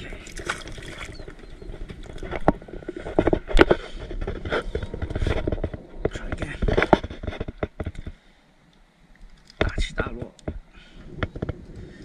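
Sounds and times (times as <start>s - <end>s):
wind on microphone: 9.7s - 12.0s.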